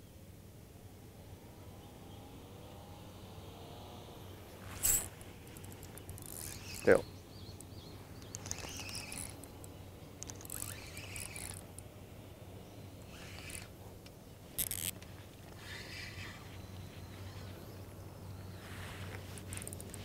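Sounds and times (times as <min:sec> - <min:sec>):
fishing reel rasps: 0:04.8 - 0:07.0, 0:07.6 - 0:11.9, 0:13.0 - 0:13.8, 0:14.6 - 0:16.4, 0:19.5 - 0:20.0.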